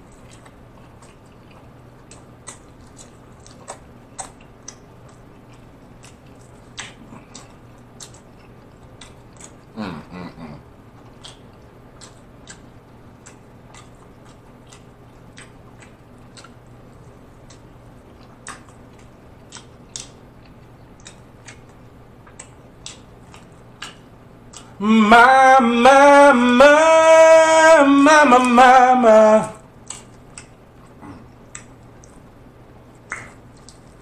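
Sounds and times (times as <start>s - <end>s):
man chewing with mouth clicks: 0.0s - 34.0s
man singing wordless notes: 24.8s - 29.7s.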